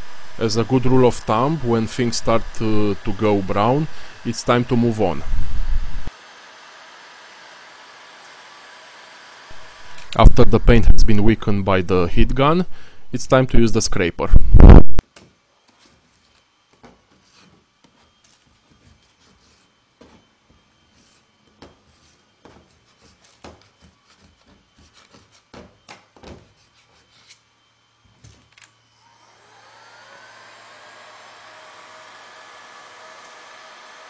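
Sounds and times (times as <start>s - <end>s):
hot-air gun hiss and whine: 0.0s - 12.1s, 27.3s - 34.0s
paint scraper scraping: 15.7s - 20.2s, 20.9s - 25.8s.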